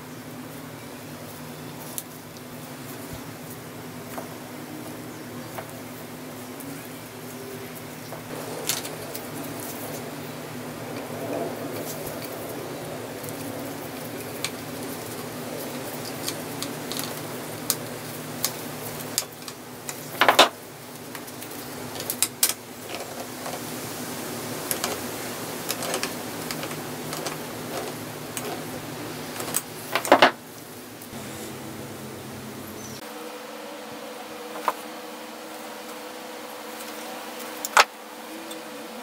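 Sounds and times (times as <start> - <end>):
steady low hum: 0.0 - 39.0
small clicks taps and scrapes: 25.7 - 28.7.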